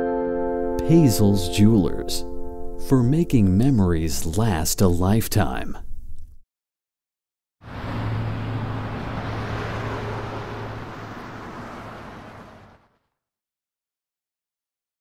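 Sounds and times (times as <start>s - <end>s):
street traffic noise: 7.6s - 13.1s.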